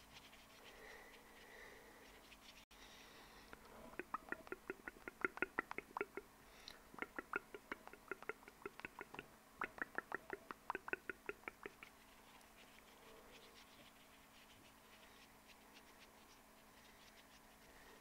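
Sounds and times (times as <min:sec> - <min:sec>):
wet mouth clicks: 0:03.5 - 0:11.9.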